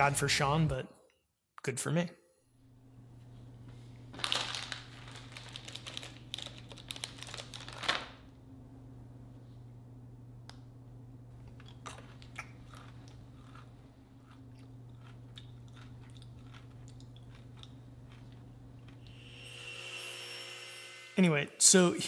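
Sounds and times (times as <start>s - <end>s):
low electrical hum: 0.0s - 22.0s
small clicks and crackles: 4.2s - 8.1s.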